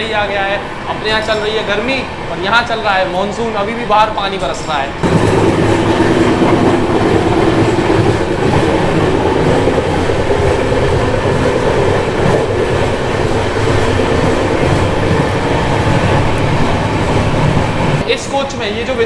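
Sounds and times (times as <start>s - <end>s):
train wheels on track: 0.0s - 19.0s.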